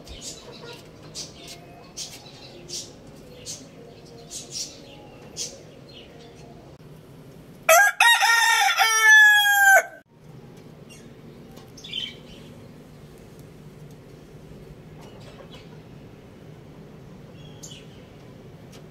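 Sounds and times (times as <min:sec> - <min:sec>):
rooster crowing: 0:07.7 - 0:10.0.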